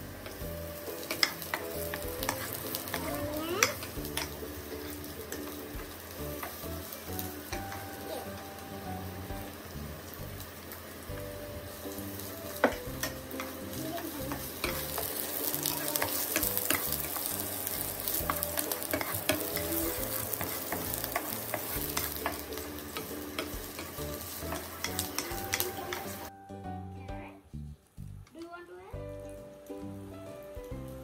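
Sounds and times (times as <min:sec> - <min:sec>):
vegetables sizzling in oil: 0:00.0 - 0:26.3, 0:27.5 - 0:31.0
wooden spatula scraping pan: 0:12.1 - 0:26.3.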